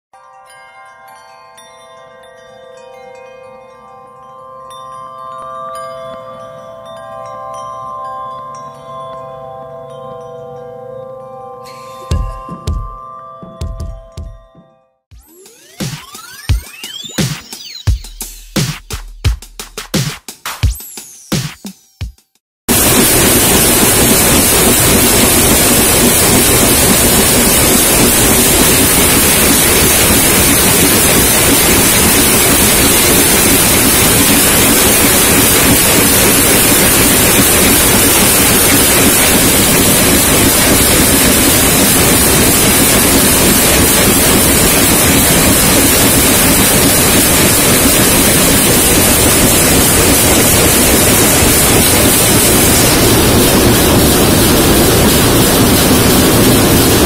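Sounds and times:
trimming machine running: 22.7 - 57.0.

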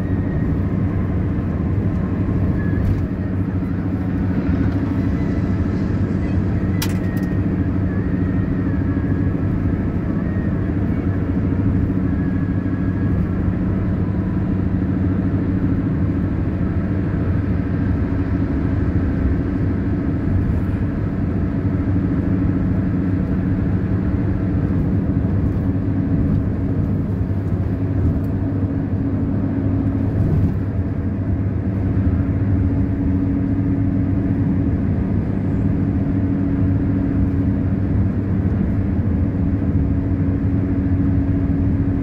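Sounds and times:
car cabin engine and road noise: 0.0 - 42.0.

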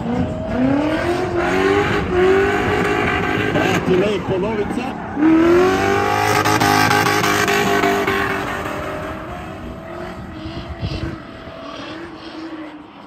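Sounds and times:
car engines at high revs: 0.0 - 13.0.

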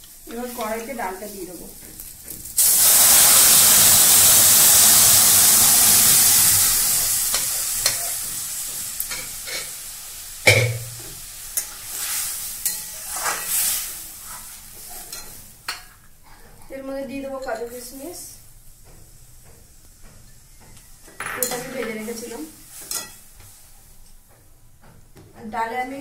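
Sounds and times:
loud sizzle in hot oil: 0.0 - 16.1, 20.7 - 24.0
ladle knocking against pan: 10.5 - 11.2.

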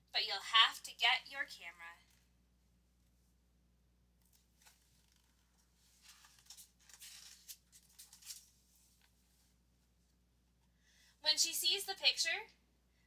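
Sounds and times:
book pages turning: 4.2 - 9.2.

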